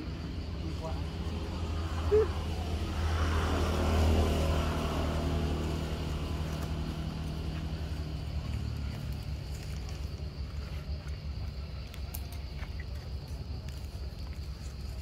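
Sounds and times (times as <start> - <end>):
motor vehicle passing: 0.0 - 11.4
steady low rumble: 0.0 - 15.0.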